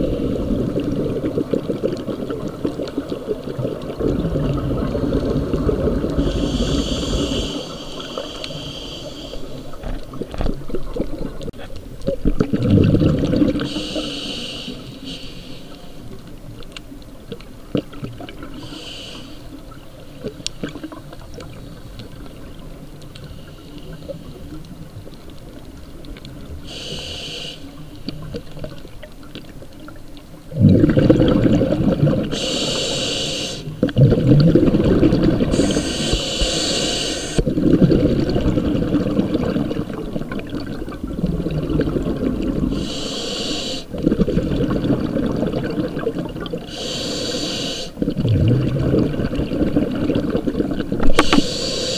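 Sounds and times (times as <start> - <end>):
exhaled bubbles rumbling: 0.0 - 7.6, 9.7 - 13.8, 28.1 - 32.4, 33.7 - 36.6, 37.3 - 42.8, 43.9 - 46.8, 48.0 - 51.4
regulator inhalation hisses: 6.2 - 9.8, 13.6 - 16.0, 18.6 - 19.6, 26.6 - 27.8, 32.3 - 33.8, 35.5 - 37.4, 42.7 - 43.9, 46.7 - 48.0, 51.2 - 51.9.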